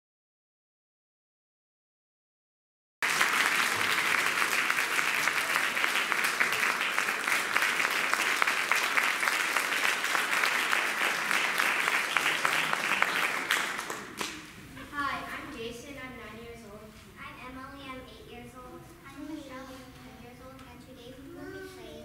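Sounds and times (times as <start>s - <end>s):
audience applauding: 3.0s - 14.5s.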